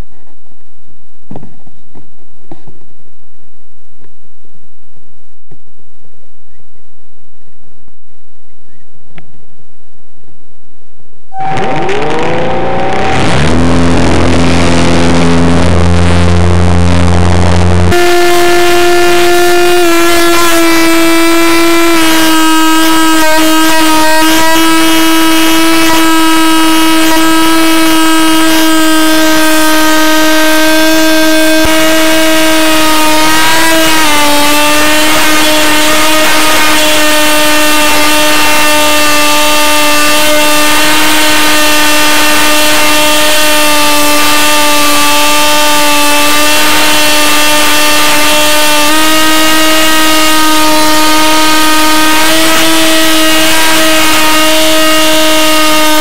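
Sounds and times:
model plane motor buzzing whine: 0:11.3 - 0:56.0.

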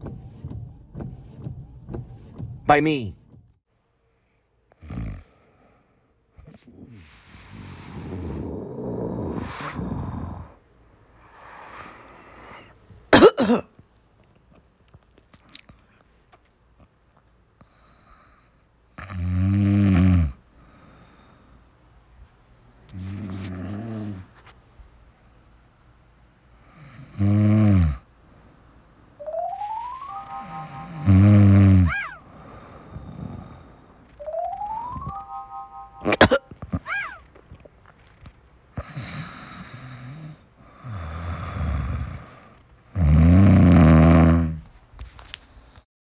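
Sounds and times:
person snoring: 0:04.8 - 0:05.8, 0:06.4 - 0:10.6, 0:19.0 - 0:20.4, 0:22.9 - 0:24.3, 0:26.7 - 0:28.0, 0:29.8 - 0:34.0, 0:38.8 - 0:44.6.

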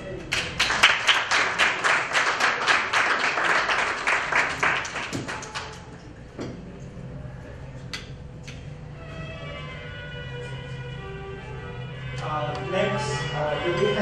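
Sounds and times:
audience applause: 0:00.3 - 0:05.8.

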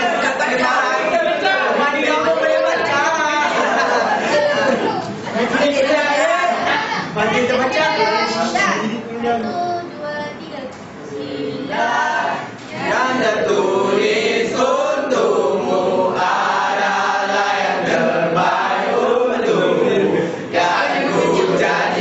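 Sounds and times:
group of students singing: 0:00.0 - 0:04.8, 0:11.1 - 0:22.0.

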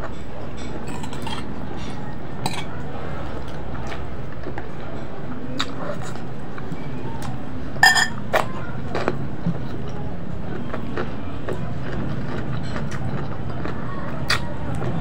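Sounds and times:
steady background hum: 0:00.0 - 0:15.0
plate clinking: 0:07.8 - 0:08.2.

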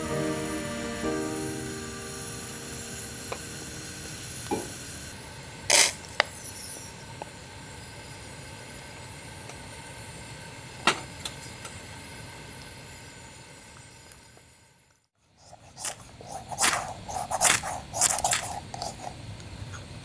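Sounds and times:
pressure burner hissing: 0:00.0 - 0:14.9.

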